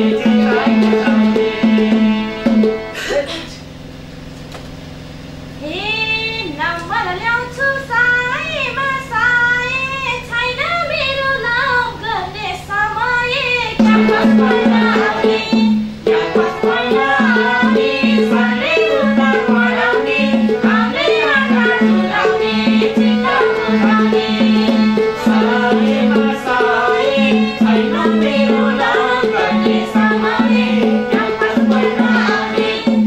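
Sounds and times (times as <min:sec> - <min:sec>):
hand drum beat: 0:00.0 - 0:03.0, 0:13.8 - 0:33.0
woman singing a folk song: 0:05.7 - 0:24.6.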